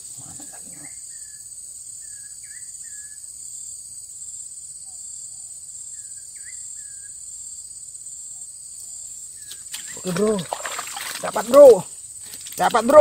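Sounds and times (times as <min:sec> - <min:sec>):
forest insects chorus: 0:00.0 - 0:13.0.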